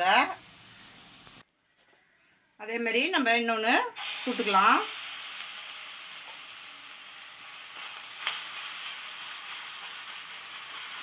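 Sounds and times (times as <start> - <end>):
oil sizzling in a pan: 0.0 - 1.4, 4.0 - 11.0.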